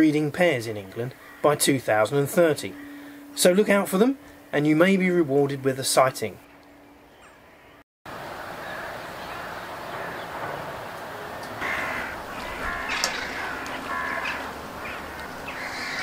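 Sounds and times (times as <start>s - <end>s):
outdoor background rush: 8.1s - 16.0s
gulls calling: 8.4s - 16.0s.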